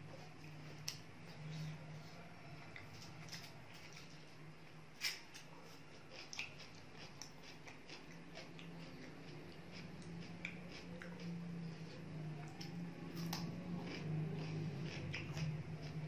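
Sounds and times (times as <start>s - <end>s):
low steady hum: 0.0s - 16.0s
chewing clicks and smacks: 2.7s - 4.2s, 5.0s - 16.0s.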